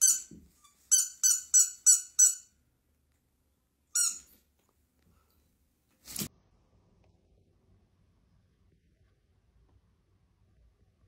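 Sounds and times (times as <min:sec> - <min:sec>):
squeaky dog toy squeaks: 0:00.0 - 0:02.5, 0:03.9 - 0:04.4.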